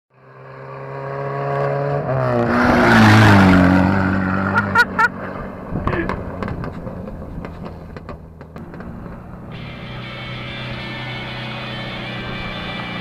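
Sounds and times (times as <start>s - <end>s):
car engine driving past: 0.2s - 13.0s
tyres on gravel: 4.3s - 13.0s.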